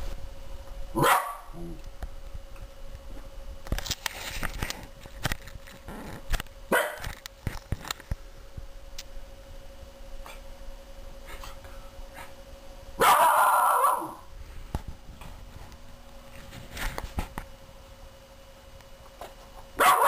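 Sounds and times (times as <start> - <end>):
dog barking: 1.0 - 1.6, 6.7 - 7.0, 13.0 - 14.2, 19.8 - 20.0.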